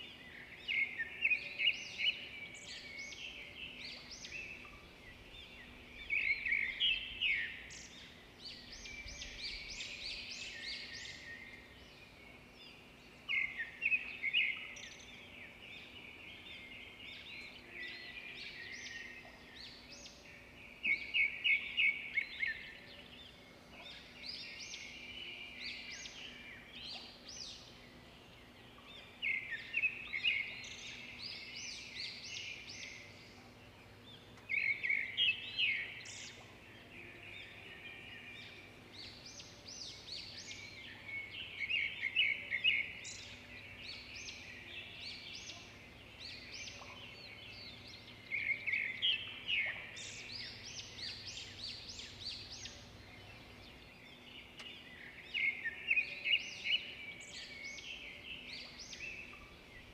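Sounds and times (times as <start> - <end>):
small birds chirping and twittering: 0.0 - 59.9.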